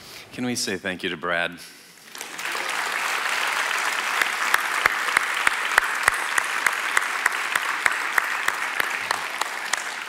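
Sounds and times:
congregation applauding: 2.0s - 10.0s
close hands clapping: 2.1s - 10.0s.

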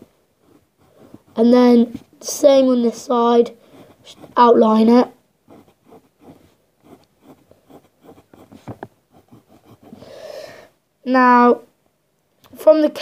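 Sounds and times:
pencil scratching on paper: 0.4s - 10.1s.

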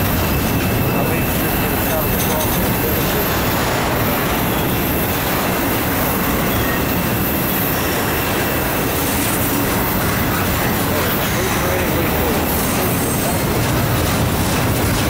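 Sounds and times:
train wheels rumbling on rails: 0.0s - 15.0s
faint high wheel squeal: 0.2s - 3.6s, 4.2s - 5.2s, 6.1s - 9.6s.

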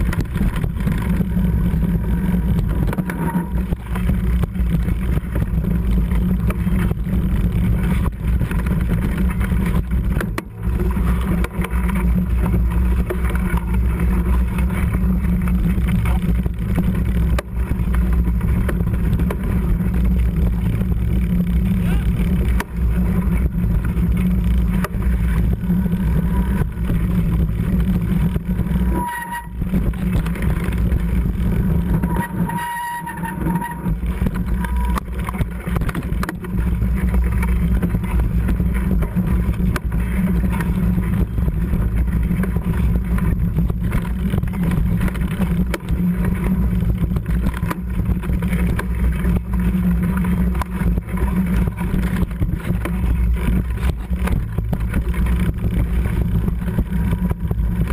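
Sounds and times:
bike tyres and frame rattling: 0.0s - 57.9s
wind on microphone: 0.0s - 57.9s
high squeals: 28.8s - 29.6s, 31.9s - 34.0s.

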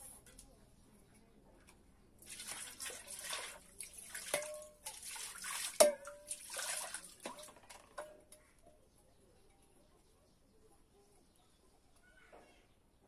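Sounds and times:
water splashing into bowl: 2.2s - 8.2s.

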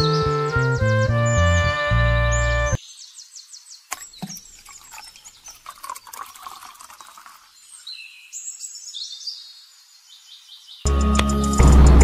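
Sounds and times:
water splashing and trickling: 3.8s - 8.5s.

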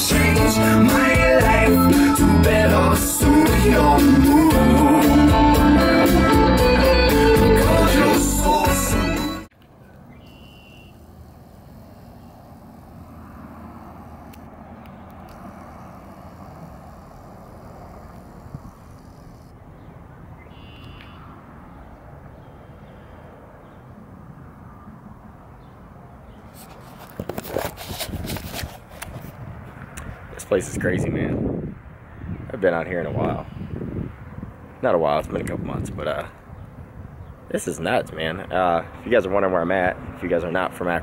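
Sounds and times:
distant traffic rumble: 9.5s - 41.0s
microphone rustling and buffeting: 18.2s - 19.0s, 26.5s - 32.5s.

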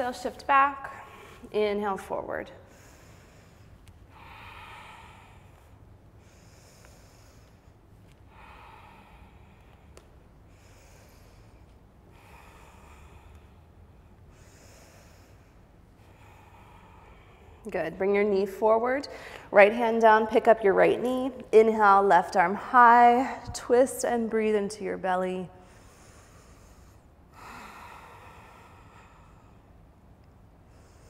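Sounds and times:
woman breathing slowly: 0.8s - 1.6s, 2.4s - 19.8s, 25.5s - 31.0s.

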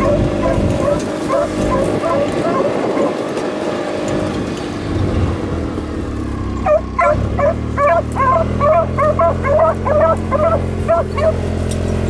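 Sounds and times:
dogs baying: 0.0s - 3.5s, 6.6s - 11.5s
vehicle engine humming: 0.0s - 12.0s.

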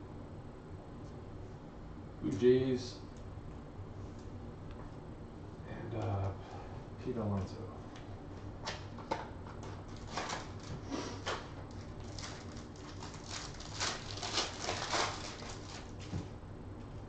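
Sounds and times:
plastic wrapper crinkling: 9.7s - 10.8s, 11.6s - 16.2s.

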